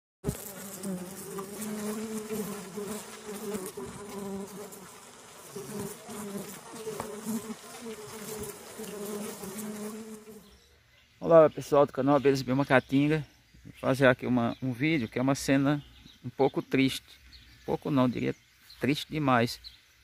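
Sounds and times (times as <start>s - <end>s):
bees buzzing: 0.2s - 10.6s.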